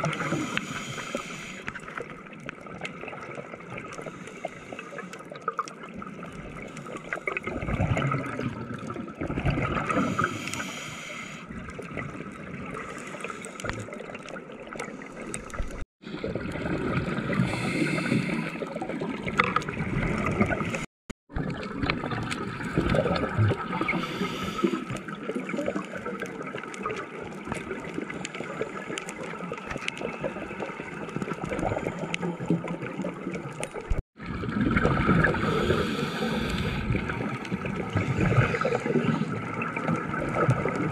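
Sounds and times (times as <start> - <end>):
steady underwater hiss: 0.0 - 1.9, 3.8 - 5.4, 9.8 - 11.6, 12.6 - 13.7, 17.1 - 18.8, 23.7 - 25.8, 35.2 - 39.7
exhaled bubbles gurgling underwater: 0.0 - 40.9.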